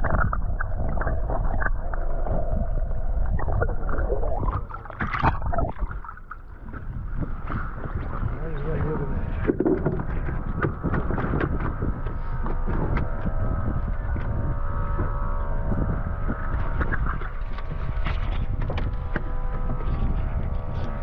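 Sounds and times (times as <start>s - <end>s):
steady hum: 0.0s - 21.0s
wind buffeting microphone: 0.0s - 21.0s.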